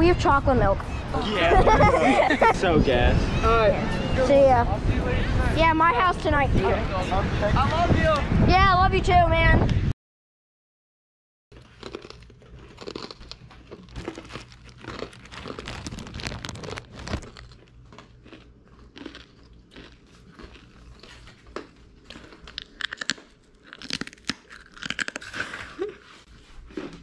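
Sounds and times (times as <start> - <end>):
plastic and foil packaging crinkling: 11.6 - 18.0.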